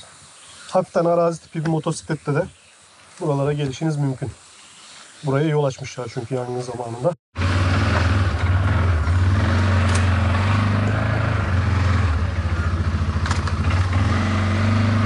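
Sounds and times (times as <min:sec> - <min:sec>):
atv engine running: 0:07.4 - 0:15.0.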